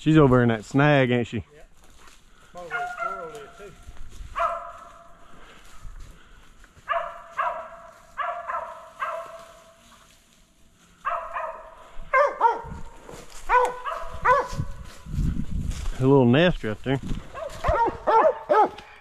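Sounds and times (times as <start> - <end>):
dog barking: 2.6 - 3.6, 4.3 - 5.1, 6.8 - 9.7, 11.0 - 14.8, 17.3 - 18.8.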